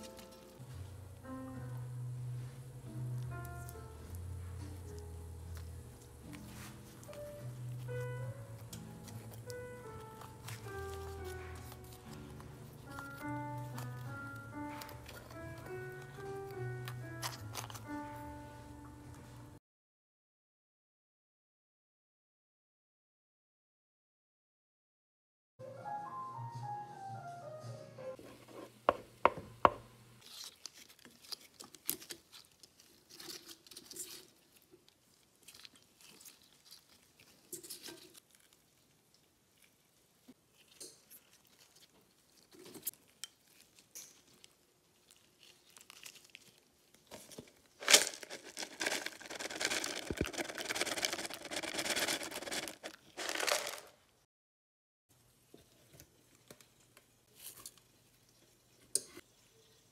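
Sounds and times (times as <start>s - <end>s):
dense scraping and crackling: 45.4s - 54.0s.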